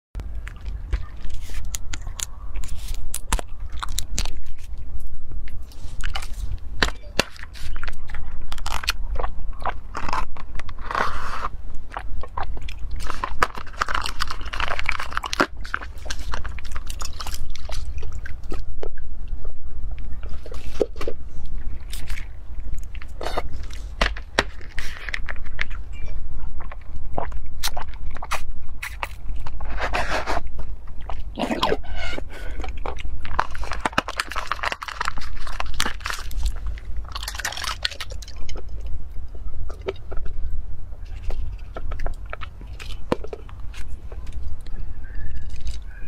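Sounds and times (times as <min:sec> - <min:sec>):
plastic cups clicking and crackling: 0:13.0 - 0:19.0, 0:32.1 - 0:39.0.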